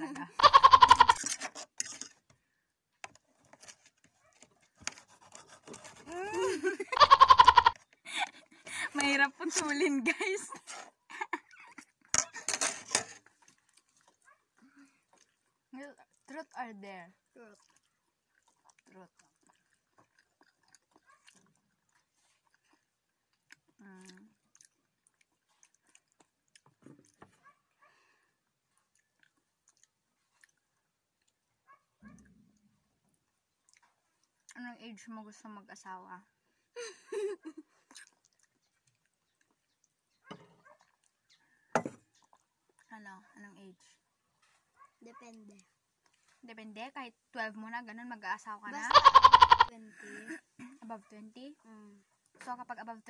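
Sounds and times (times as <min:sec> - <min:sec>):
child chewing a snack: 0:13.1 - 0:16.6, 0:17.2 - 0:34.6, 0:37.4 - 0:42.9, 0:44.4 - 0:46.4.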